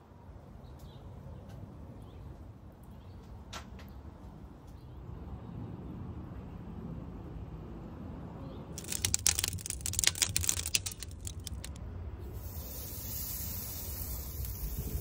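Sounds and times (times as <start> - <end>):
crackling and popping on grill: 8.8 - 11.8, 12.4 - 15.0
steady high sizzle: 12.4 - 15.0.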